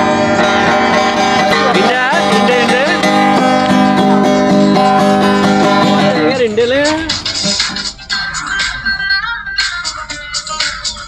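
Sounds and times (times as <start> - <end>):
acoustic guitar strumming: 0.0 - 11.0
sliding guitar melody: 0.0 - 11.0.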